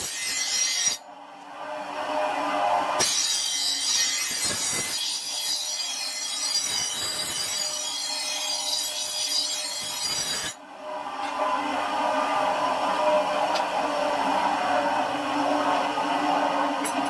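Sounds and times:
grinder grinding steel blade: 0.0s - 1.0s, 2.9s - 10.6s.

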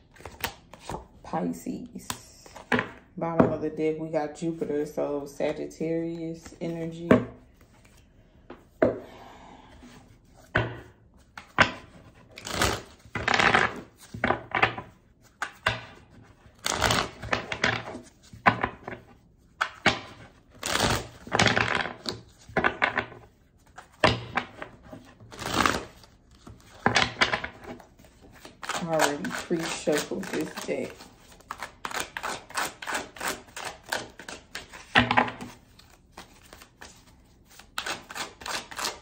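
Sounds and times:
cards being shuffled: 0.0s - 1.2s, 11.2s - 15.8s, 19.6s - 39.0s.

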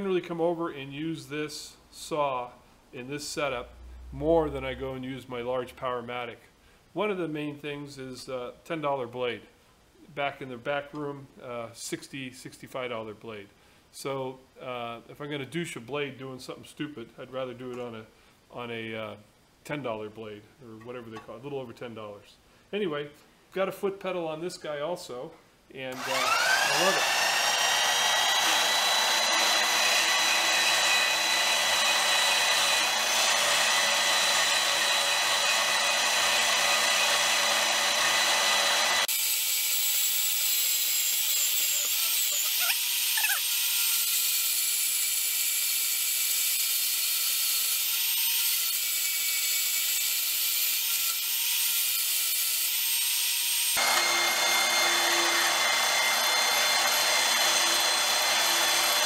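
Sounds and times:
band saw cutting metal: 25.9s - 59.0s.

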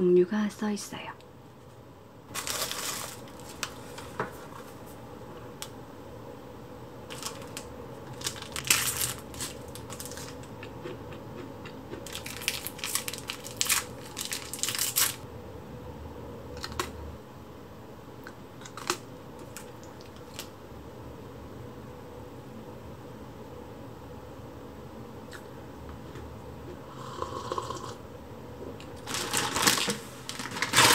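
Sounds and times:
plastic wrappers crinkling: 2.3s - 4.6s, 7.1s - 10.6s, 12.0s - 15.2s, 29.0s - 30.9s.

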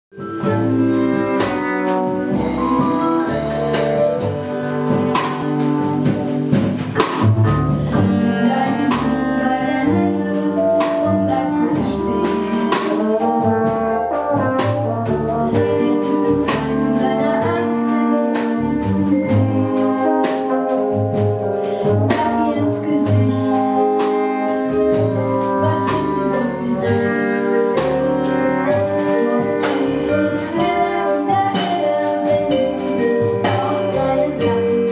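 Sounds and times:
bass clarinet: 0.1s - 34.9s
double bass: 0.1s - 34.9s
drums: 0.1s - 34.9s
trombone: 0.1s - 34.9s.

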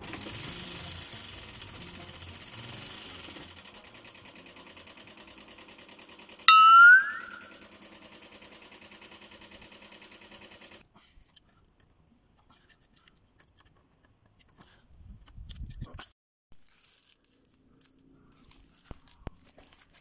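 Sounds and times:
spanner clicking and scraping: 0.0s - 3.8s, 12.6s - 14.6s.

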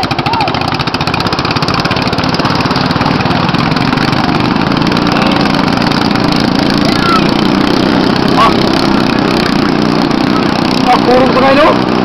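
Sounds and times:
small boat engines running: 0.0s - 12.0s.

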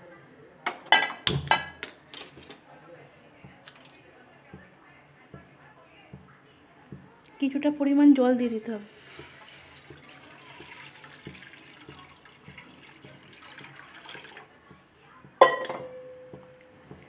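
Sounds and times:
water pouring into metal pan: 8.8s - 14.6s.

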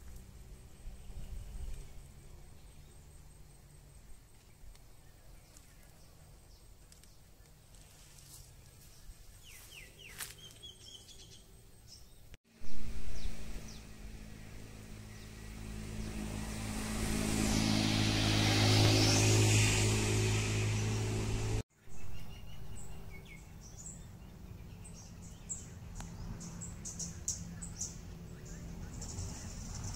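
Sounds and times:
vehicle engine humming: 12.6s - 21.6s, 22.4s - 29.9s.

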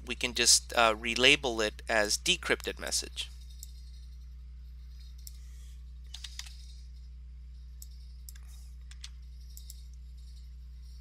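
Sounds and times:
low electrical hum: 0.0s - 11.0s
keyboard and mouse clicks: 6.1s - 6.5s.

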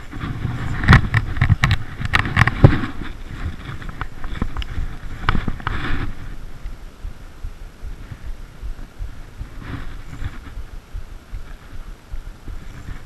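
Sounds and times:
knocks and scrapes of handling: 0.0s - 6.4s, 8.0s - 10.7s, 12.5s - 13.0s
rain jacket rustling: 0.0s - 6.6s.

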